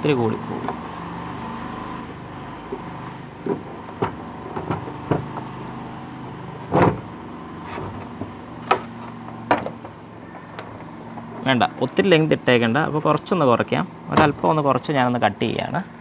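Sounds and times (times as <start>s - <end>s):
car parts clicking and knocking: 0.0s - 1.4s, 2.6s - 13.3s, 14.1s - 14.7s.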